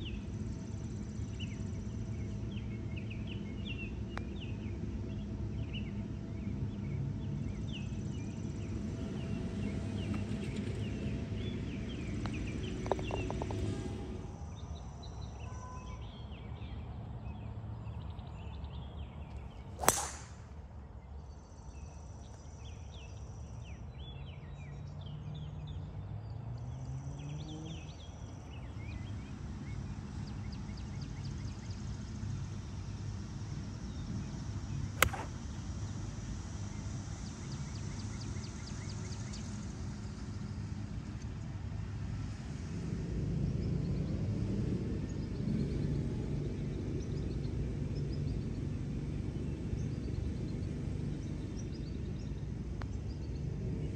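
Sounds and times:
golf club striking ball: 0:19.8 - 0:20.4, 0:35.0 - 0:35.4.

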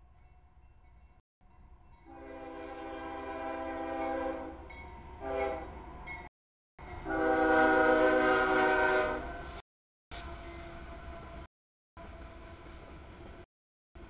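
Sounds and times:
locomotive air horn blasts: 0:02.1 - 0:04.6, 0:05.2 - 0:05.8, 0:07.0 - 0:10.3.

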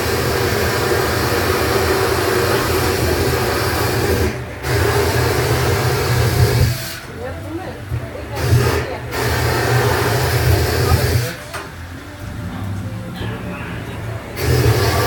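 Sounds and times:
flamethrower hissing: 0:00.0 - 0:07.2, 0:08.3 - 0:11.4, 0:14.4 - 0:15.0.

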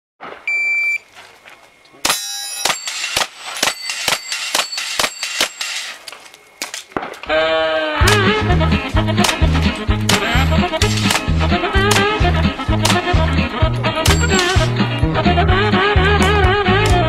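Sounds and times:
shot timer beep: 0:00.5 - 0:01.0
rapid pistol shots: 0:02.0 - 0:07.2, 0:09.1 - 0:13.3
steel plates ringing: 0:02.1 - 0:06.0, 0:14.0 - 0:14.9
music with a beat: 0:08.0 - 0:17.0.

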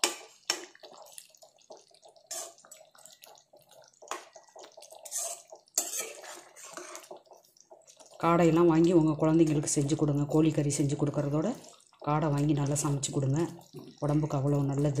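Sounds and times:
spoon scraping and knocking pan: 0:00.0 - 0:03.0, 0:03.8 - 0:07.3
spoon stirring thick gravy: 0:00.0 - 0:15.0.

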